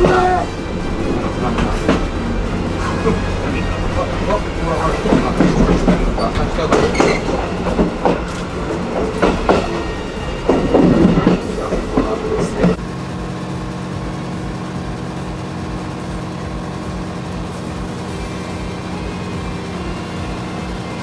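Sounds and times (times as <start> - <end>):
generator droning hum: 0.0 - 6.6, 12.1 - 21.0
train coach clanking over rail joints: 0.0 - 12.8.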